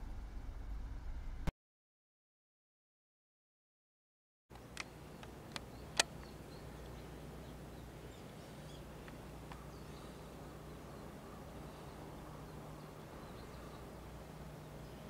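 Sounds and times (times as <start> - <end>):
steady low hum: 0.0 - 1.5, 4.5 - 15.0
sharp clicks: 4.5 - 7.0
faint bird chirps: 4.6 - 15.0.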